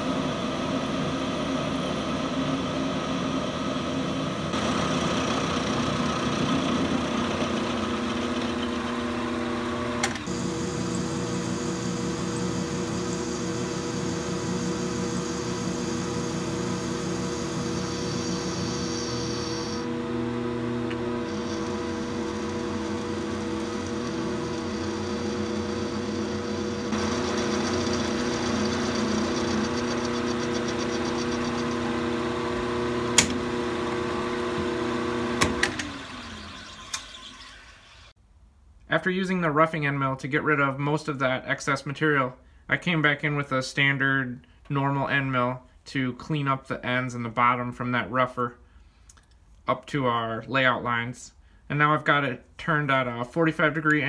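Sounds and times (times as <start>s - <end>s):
steady motor hum: 0.0s - 38.1s
milling machine cutting metal: 3.2s - 38.1s.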